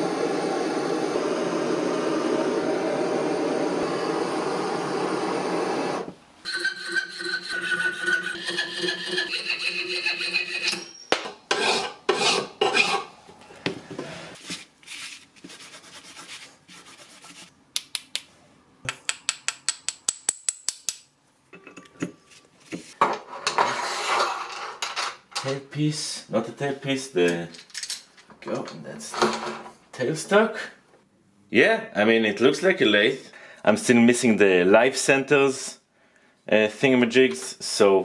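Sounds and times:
gas torch hissing: 0.0 - 6.2
file rasping on brass: 6.5 - 10.9, 11.5 - 13.1.

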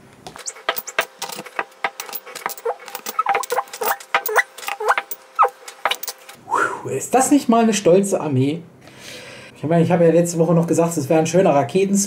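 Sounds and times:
short squeaks: 0.4 - 6.2
glass bottles clinking on table: 0.7 - 5.2.

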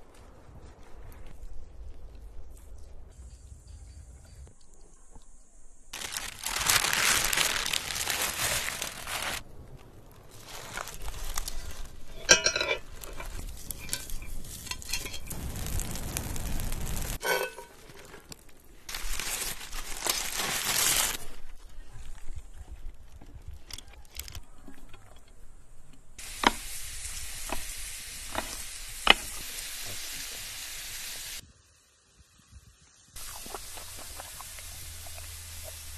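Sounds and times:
paper and foil crinkling: 6.0 - 21.4
metal pot clinking: 12.1 - 15.3, 17.2 - 18.1.

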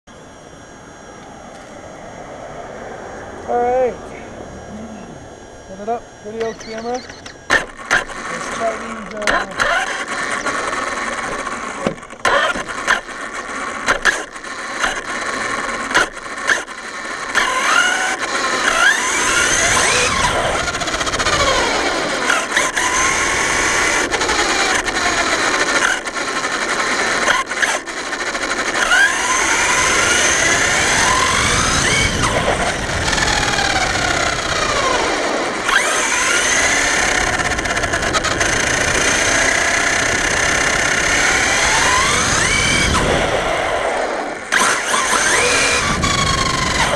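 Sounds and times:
rc car motor whine: 0.1 - 46.9
sharp clicks and knocks: 6.4 - 15.0.

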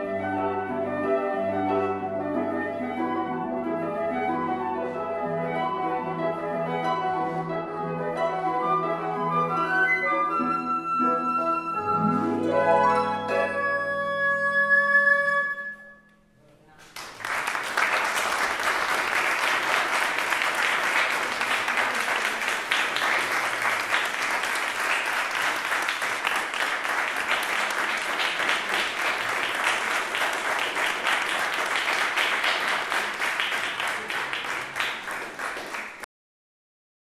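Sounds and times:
audience applauding: 16.8 - 36.1.

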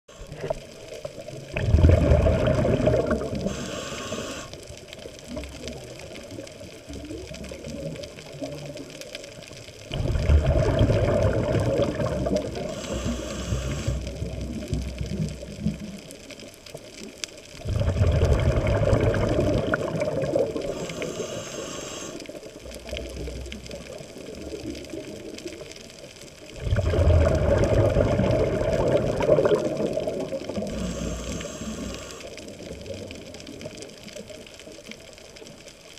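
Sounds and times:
bubbling exhalations underwater: 0.2 - 4.3, 9.8 - 16.0, 17.6 - 21.0, 26.4 - 33.7
regulator hiss: 3.4 - 4.8, 12.6 - 14.2, 20.6 - 22.5, 30.6 - 32.4.

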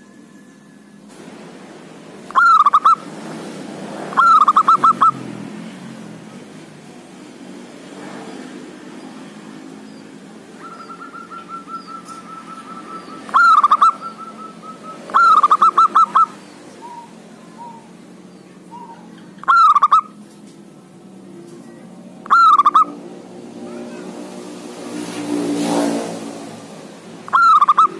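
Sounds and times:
dove cooing: 2.3 - 3.1, 4.1 - 5.3, 10.6 - 18.0, 18.7 - 20.2, 22.2 - 23.0, 27.3 - 27.9.

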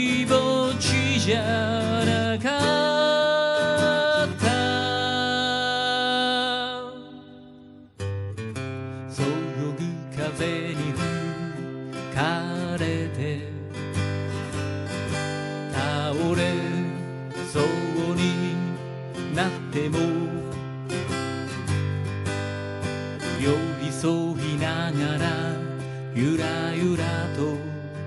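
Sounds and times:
man singing: 0.0 - 7.7, 9.1 - 13.8, 15.6 - 20.6, 23.2 - 28.0
acoustic guitar strumming: 0.0 - 28.0.

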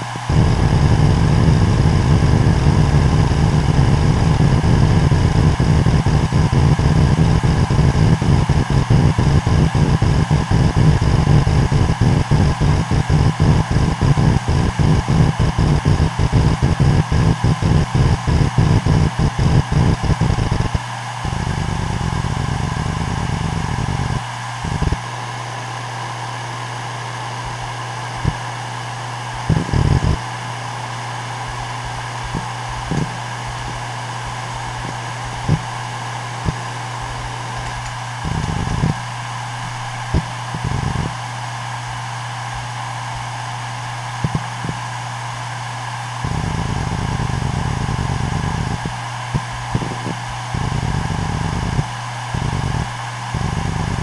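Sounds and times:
hard drive spinning hum: 0.0 - 54.0
hard drive seek clicking: 31.8 - 41.2, 44.2 - 44.9, 46.3 - 54.0.

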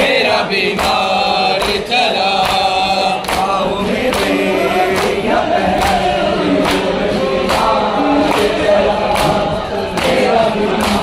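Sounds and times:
men singing a lament in unison: 0.0 - 11.0
hands slapping bare chests: 0.8 - 4.4.

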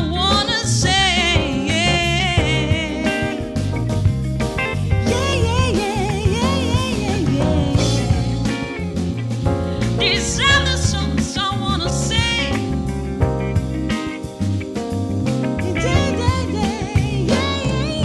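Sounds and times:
man singing soul song: 0.0 - 4.0, 4.8 - 12.6, 15.6 - 18.0
backing band: 0.2 - 18.0.

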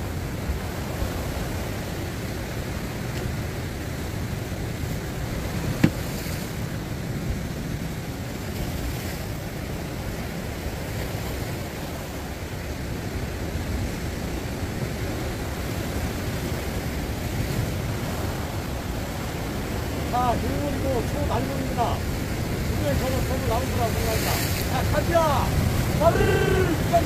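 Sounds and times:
surf washing against rocks: 0.0 - 27.0
wind buffeting microphone: 14.6 - 27.0.

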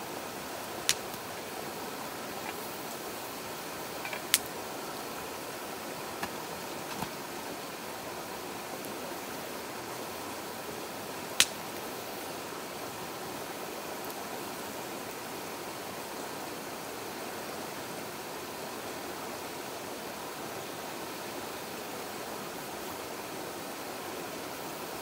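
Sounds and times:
stream rushing over rocks: 0.0 - 25.0
wood fire snapping: 0.8 - 1.2, 4.0 - 4.5, 6.2 - 7.3, 11.4 - 11.6.

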